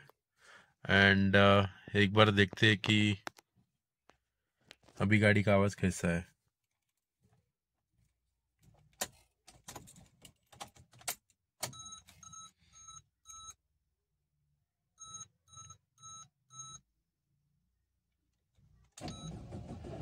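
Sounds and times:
car keys clicking and rattling: 8.8s - 11.3s.

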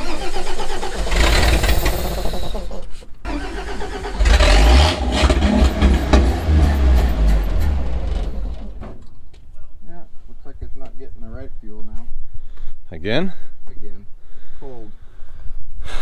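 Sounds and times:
truck engine cranking: 0.0s - 9.3s.

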